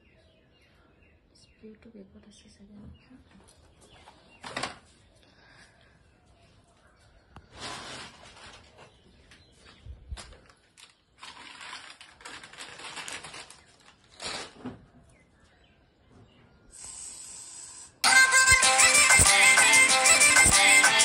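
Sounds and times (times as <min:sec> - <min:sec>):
plastic bag rustling: 0:07.5 - 0:14.9
short hiss: 0:16.8 - 0:18.0
loud background music: 0:18.0 - 0:21.0.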